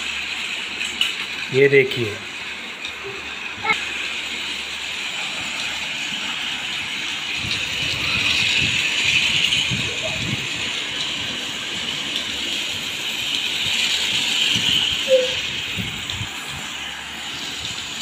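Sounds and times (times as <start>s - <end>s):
toy train motor whirring: 0.0s - 18.0s.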